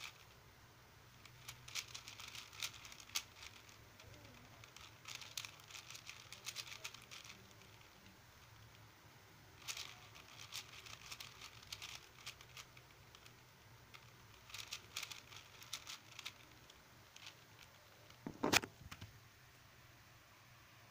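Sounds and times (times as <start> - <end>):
puzzle cube clicking: 1.2 - 8.0, 9.6 - 18.7.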